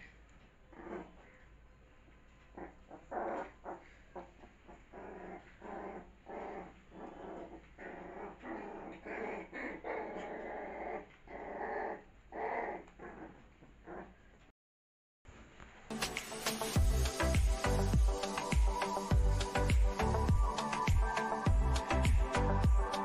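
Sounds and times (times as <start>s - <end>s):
puppies growling: 0.7s - 1.4s, 2.5s - 14.2s.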